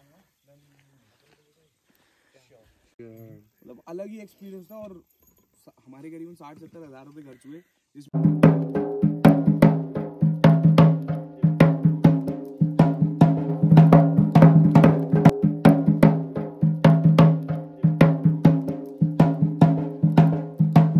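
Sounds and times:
background music with percussive beat: 8.2s - 20.9s.

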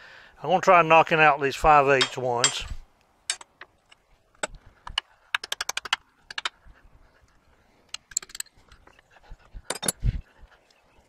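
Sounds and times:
hammer clinking on steel: 2.0s - 3.5s.

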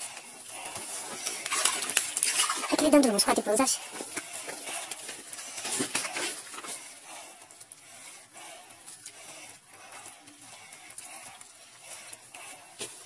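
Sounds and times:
fishing line scraping: 1.0s - 2.8s.

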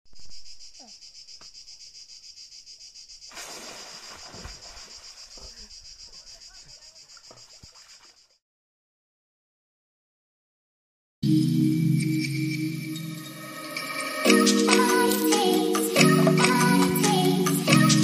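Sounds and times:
insects shrilling: 0.2s - 8.4s.

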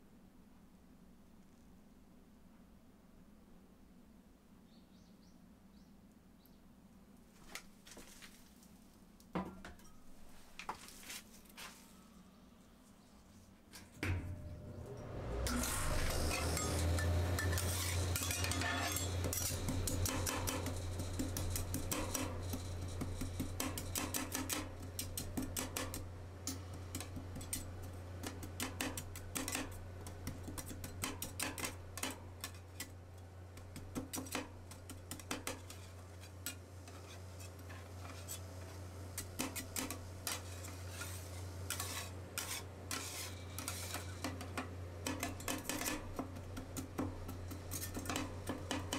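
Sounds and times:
low hum of freezing plate: 13.7s - 48.9s
steel spatulas chopping and scraping: 13.8s - 48.9s.

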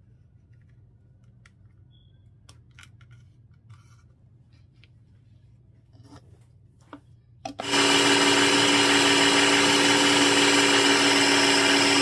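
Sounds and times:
food processor running: 7.5s - 12.0s.

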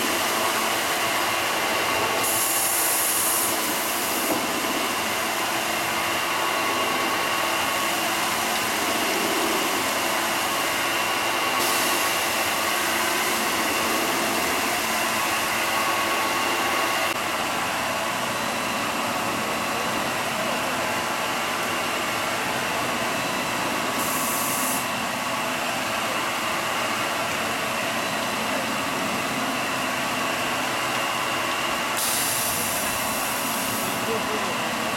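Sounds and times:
hiss: 2.1s - 5.9s, 7.6s - 16.1s, 23.9s - 24.9s, 31.9s - 34.2s.

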